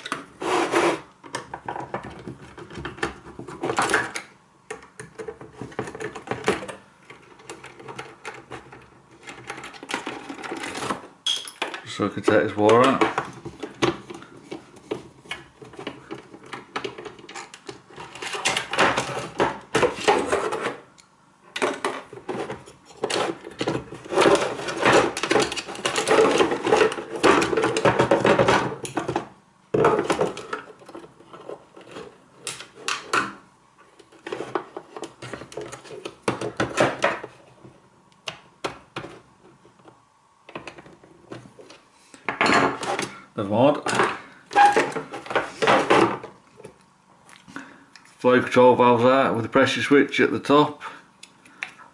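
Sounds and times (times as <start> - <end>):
plastic and metal parts rattling: 1.3 - 20.8, 21.5 - 33.3, 43.8 - 46.4.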